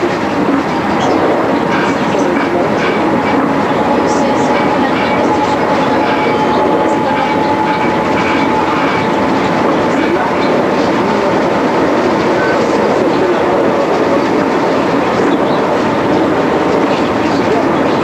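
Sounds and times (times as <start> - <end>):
thin steady whine: 0.0 - 17.8
rail clicks: 0.0 - 18.0
train wheels rolling on rails: 0.0 - 18.0.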